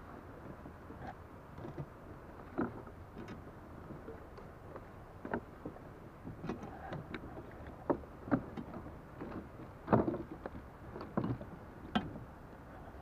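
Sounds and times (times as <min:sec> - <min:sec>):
gear knocking on plastic kayak: 0:07.0 - 0:12.2.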